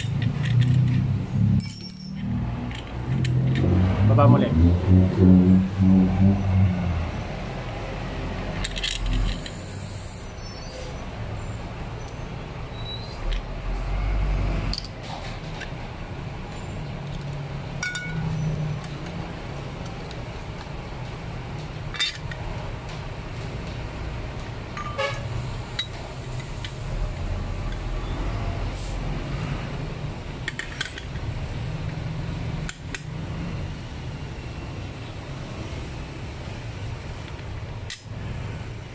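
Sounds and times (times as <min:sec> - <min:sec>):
metal parts clicking and clinking: 0:00.0 - 0:03.7, 0:08.6 - 0:09.6, 0:14.7 - 0:15.8, 0:17.0 - 0:19.1, 0:21.9 - 0:22.4, 0:30.4 - 0:31.3.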